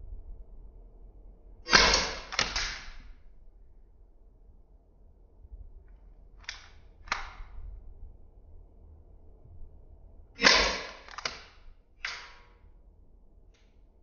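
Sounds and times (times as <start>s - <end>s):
sharp knocks: 1.7s - 2.8s, 10.4s - 11.5s
slowed airsoft revolver shot: 1.7s - 3.1s, 6.4s - 7.5s, 10.4s - 12.5s.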